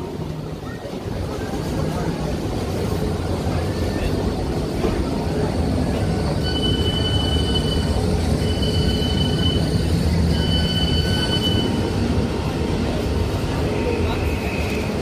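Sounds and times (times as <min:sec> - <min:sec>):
train rumbling: 0:00.0 - 0:15.0
train wheels squealing on rails: 0:03.4 - 0:15.0.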